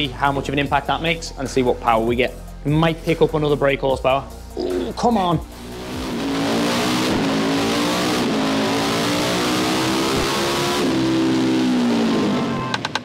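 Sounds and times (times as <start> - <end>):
motorcycle engine revving: 4.6 - 13.0.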